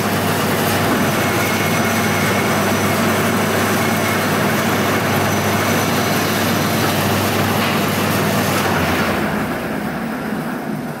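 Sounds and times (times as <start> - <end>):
metal lathe humming: 0.0 - 10.8.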